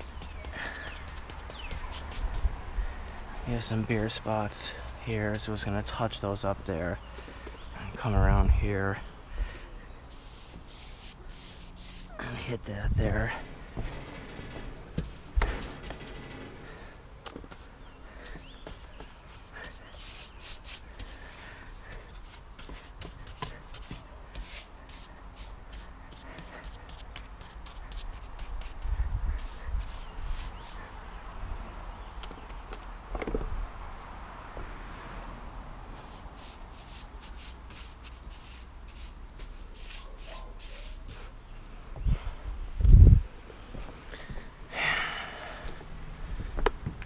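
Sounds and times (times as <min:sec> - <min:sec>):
paint brush scrubbing wood: 0:00.0 - 0:06.5, 0:10.1 - 0:13.7, 0:17.4 - 0:31.0, 0:36.0 - 0:41.4.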